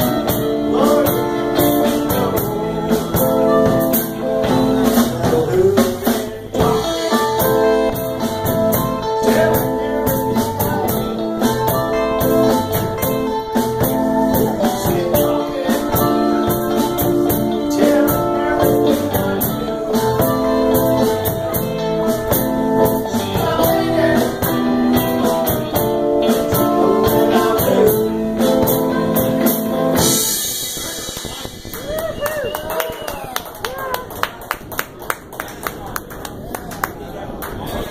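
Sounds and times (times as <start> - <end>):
drum kit: 0.0 - 34.0
electric guitars: 0.0 - 35.4.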